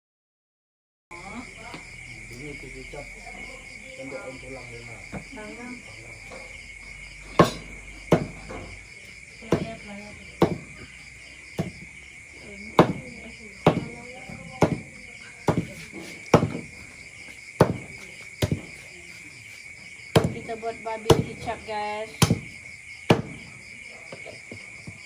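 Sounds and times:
crickets chirping: 1.1 - 25.0
cleaver chopping on board: 7.4 - 8.7, 10.4 - 10.6, 12.8 - 14.0, 14.6 - 16.6, 17.6 - 18.7, 22.2 - 22.5, 23.1 - 23.4.

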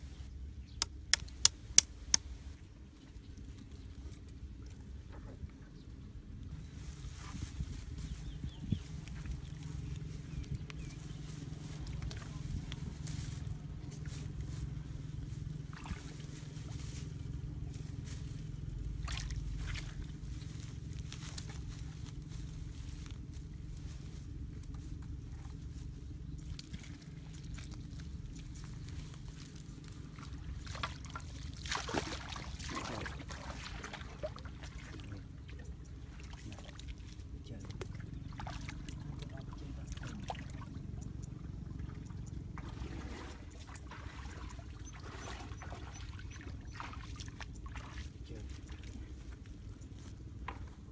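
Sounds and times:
steady low hum: 0.0 - 50.9
low rumble: 1.6 - 50.9
muddy water trickling and sloshing: 2.1 - 50.9
leafy branches rustling: 6.4 - 34.7.

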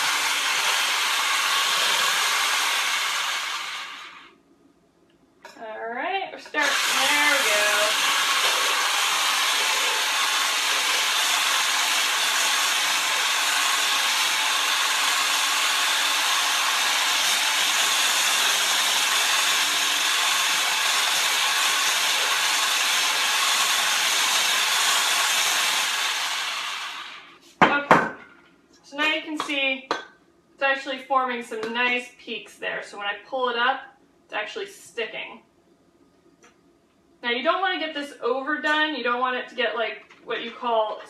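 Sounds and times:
electric hand mixer whipping: 0.0 - 4.3, 6.5 - 27.3.

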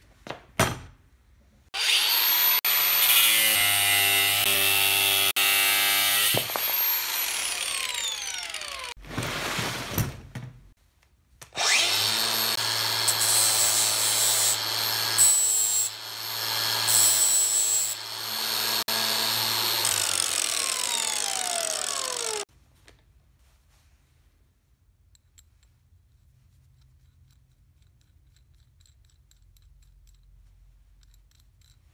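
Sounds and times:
angle grinder cutting steel rod: 1.8 - 9.0, 11.6 - 22.5
grinder winding down: 1.8 - 9.0, 11.6 - 22.5
grinder starting up whine: 6.4 - 8.9, 11.6 - 22.5
grinder scraping metal: 11.6 - 22.5.

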